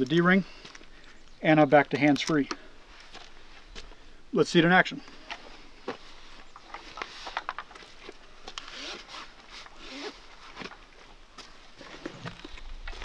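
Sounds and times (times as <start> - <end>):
webbing and clothing rustling: 5.0 - 13.0.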